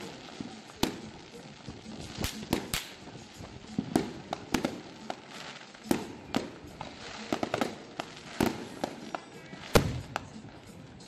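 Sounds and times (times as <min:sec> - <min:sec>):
fireworks banging: 0:00.0 - 0:11.0.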